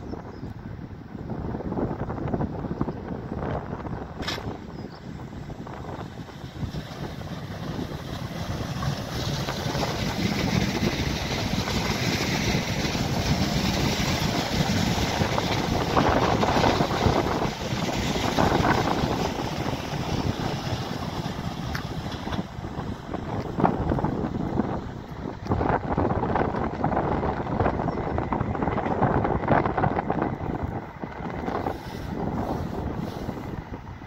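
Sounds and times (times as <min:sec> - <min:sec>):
wind buffeting microphone: 0:00.0 - 0:34.0
train passing: 0:00.6 - 0:34.0.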